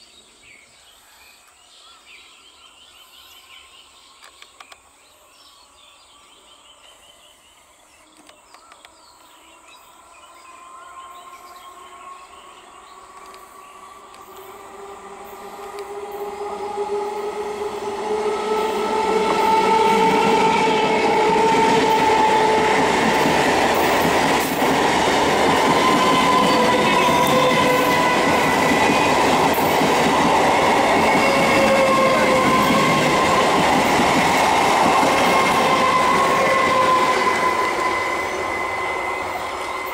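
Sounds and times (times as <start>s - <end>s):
train wheels on rails: 10.0s - 39.9s
electric train motor whine: 11.0s - 24.6s.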